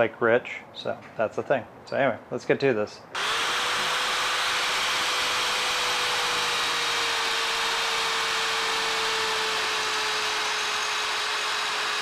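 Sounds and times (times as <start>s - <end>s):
corded drill boring into wood: 3.2s - 12.0s.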